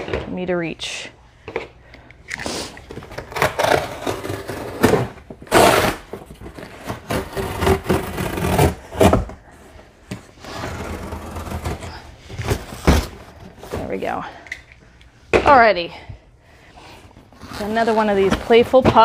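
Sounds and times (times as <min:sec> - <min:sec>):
cardboard scraping and flexing: 0:03.0 - 0:09.5, 0:10.2 - 0:14.1, 0:17.4 - 0:19.0
box cutter slicing cardboard: 0:03.2 - 0:09.3, 0:10.4 - 0:13.1.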